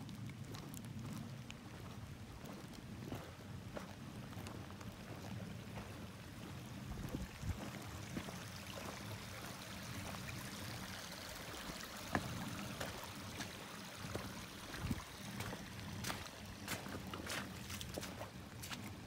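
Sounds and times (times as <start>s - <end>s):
footsteps on muddy trail: 0.0s - 19.0s
running water hiss: 7.2s - 18.9s.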